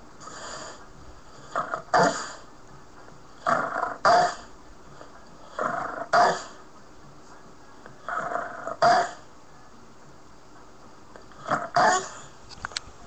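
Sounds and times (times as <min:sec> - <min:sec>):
dog breathing and snorting: 0:00.2 - 0:02.5, 0:03.4 - 0:06.6.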